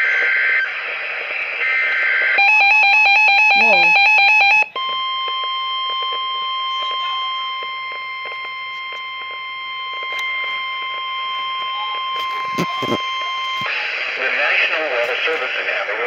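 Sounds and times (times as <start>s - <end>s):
steady warning alarm tone: 1.6s - 13.8s
rapid beeping alarm: 1.7s - 13.9s.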